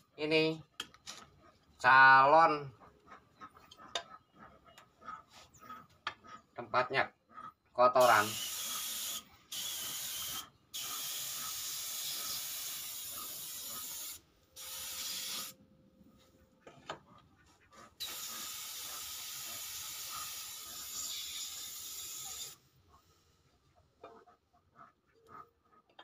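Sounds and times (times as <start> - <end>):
spray gun hissing: 8.0 - 15.6, 18.0 - 22.6.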